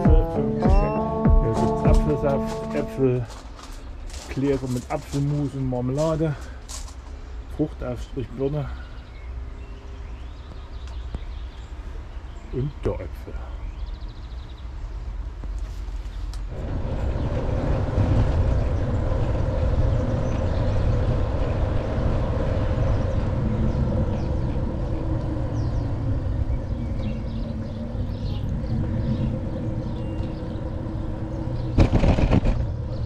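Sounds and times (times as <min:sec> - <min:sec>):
steady hum: 0:00.0 - 0:05.0
rolling noise: 0:00.0 - 0:07.2, 0:15.7 - 0:33.0
wind rumble: 0:00.0 - 0:33.0.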